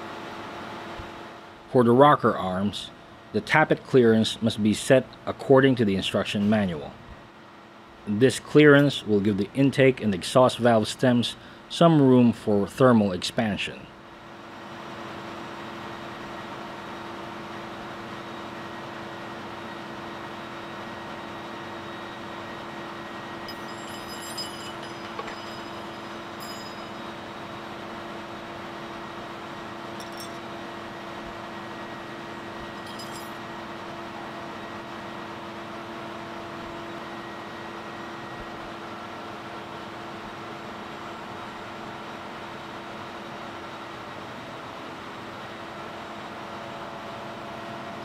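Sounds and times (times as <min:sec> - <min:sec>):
engine-room machinery drone: 0:00.0 - 0:48.0
spanner metallic clinks: 0:23.4 - 0:27.2, 0:30.0 - 0:30.5, 0:32.7 - 0:33.4.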